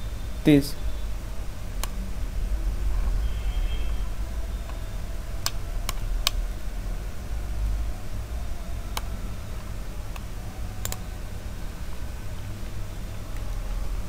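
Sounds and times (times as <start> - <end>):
steady low hum: 0.0 - 14.0
computer mouse clicking: 5.4 - 6.4, 8.9 - 9.2, 10.1 - 11.1.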